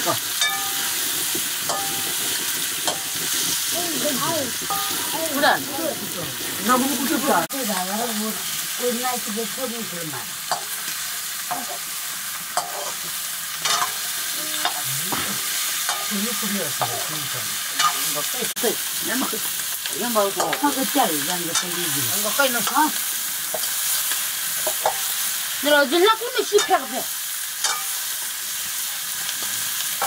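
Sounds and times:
curry sizzling in a wok: 0.0s - 30.0s
metal ladle scraping a pan: 12.5s - 14.8s, 27.6s - 28.2s.

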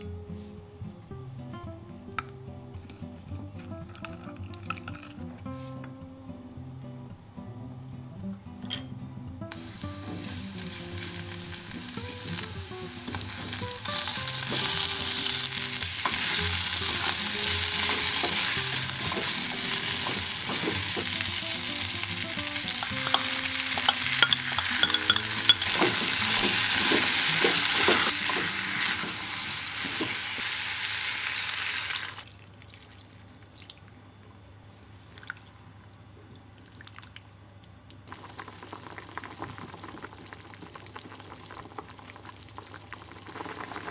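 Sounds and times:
food sizzling in oil: 9.5s - 32.3s, 38.1s - 43.9s
faint simmering: 9.5s - 43.9s
spatula stirring: 14.4s - 21.2s, 22.8s - 29.1s.

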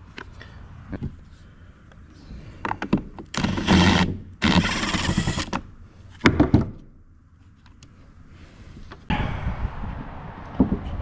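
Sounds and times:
cordless drill spinning: 3.4s - 5.6s.

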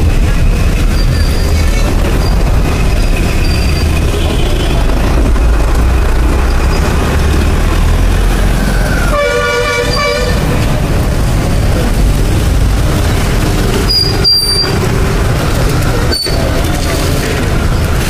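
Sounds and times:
passing engines: 0.0s - 18.0s
vehicle horn blast: 9.1s - 10.5s.

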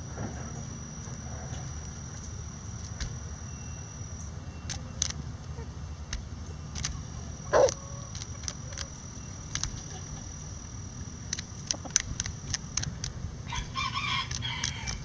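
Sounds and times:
roosters pecking clicks: 0.6s - 15.0s
rooster crowing: 7.5s - 8.2s, 13.4s - 15.0s.

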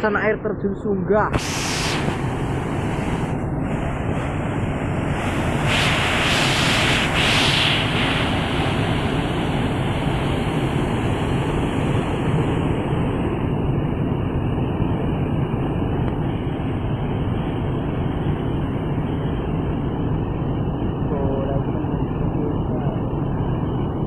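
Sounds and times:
waterfall torrent rushing: 4.0s - 11.4s.

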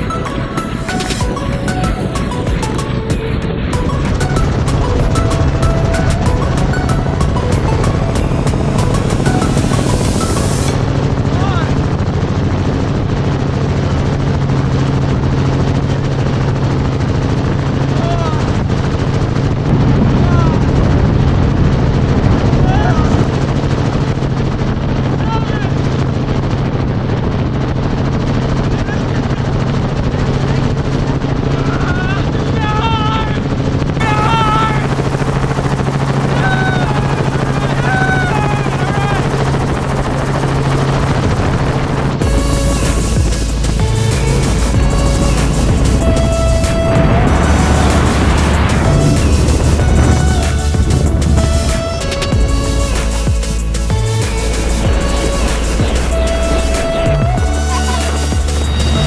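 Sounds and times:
helicopter engine hum: 0.0s - 59.0s
helicopter rotor beat: 0.0s - 59.0s
wind rushing over microphone: 0.0s - 59.0s
man yelling with effort: 34.0s - 35.0s.

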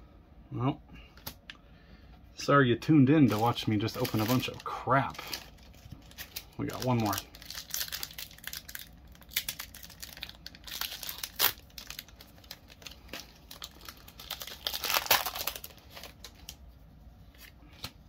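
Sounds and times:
foil wrapper crinkling and tearing: 3.2s - 16.6s.

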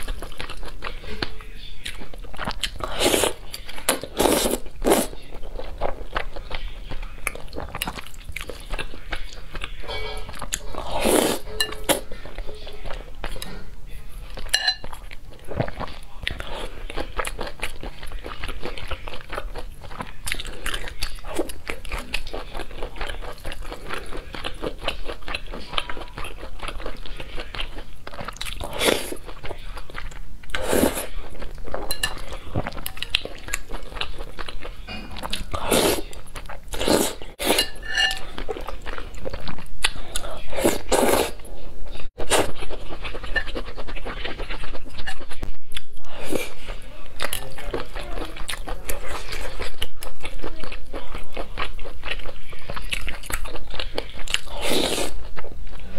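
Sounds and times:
chewing with wet mouth clicks: 0.0s - 10.7s, 14.4s - 30.7s, 47.2s - 55.8s.

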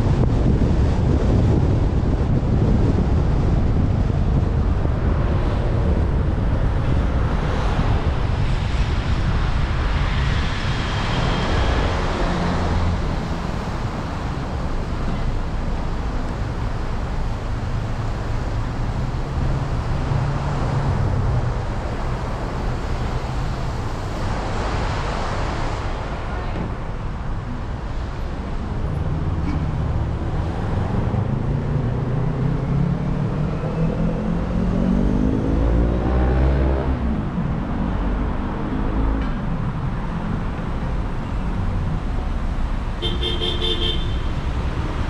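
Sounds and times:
wind buffeting microphone: 0.0s - 19.8s
car road noise rumble: 0.0s - 45.0s.

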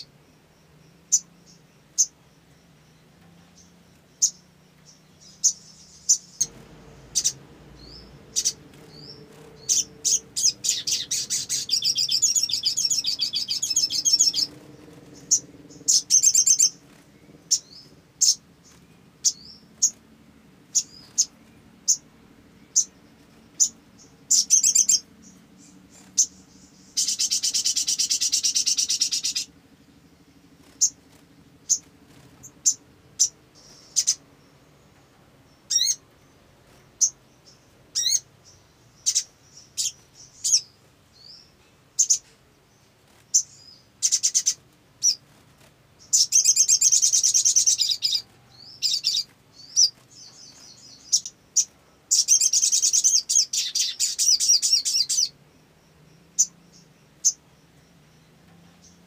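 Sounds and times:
bird chirping: 0.0s - 59.0s
bird rattling trills: 5.2s - 20.0s, 22.7s - 34.2s, 43.0s - 55.3s.

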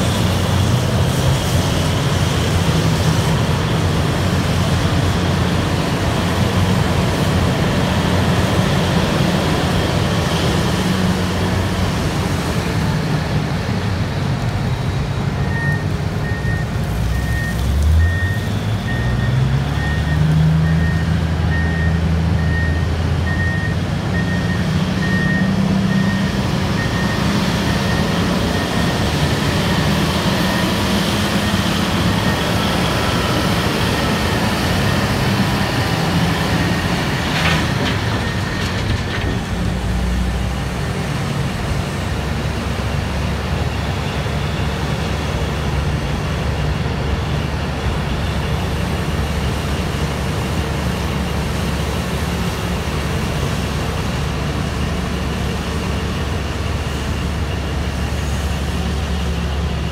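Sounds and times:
heavy machinery running: 0.0s - 59.9s
reversing alarm beeping: 15.4s - 35.9s.

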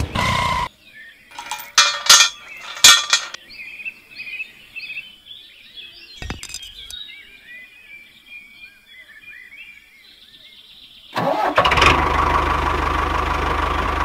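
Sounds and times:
small birds chirping: 0.0s - 11.2s.

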